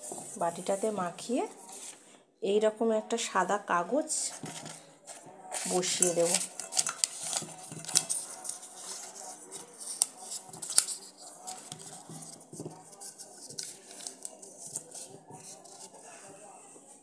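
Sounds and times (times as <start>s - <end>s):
paper crinkling and rustling: 4.3s - 16.1s.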